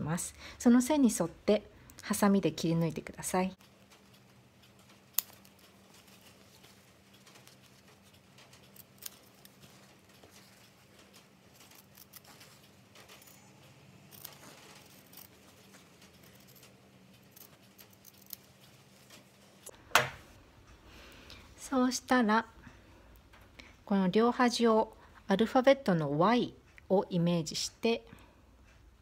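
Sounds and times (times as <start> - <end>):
scissors snipping fabric: 5.2 - 10.7, 11.5 - 18.5.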